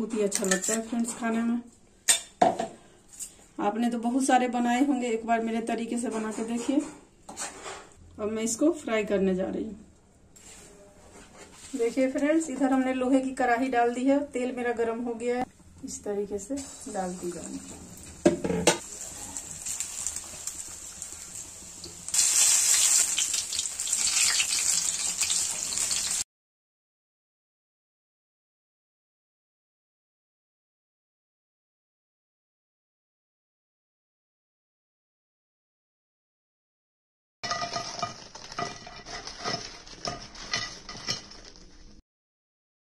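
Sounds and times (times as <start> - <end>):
food deep-frying in hot oil: 16.6 - 26.2
metal skimmer scraping a pan: 37.4 - 41.4.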